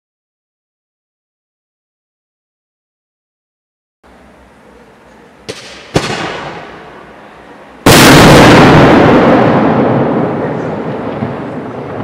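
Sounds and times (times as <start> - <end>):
firework shells bursting: 5.4 - 7.1, 7.8 - 10.3
loud echoing firework blast: 5.4 - 12.0.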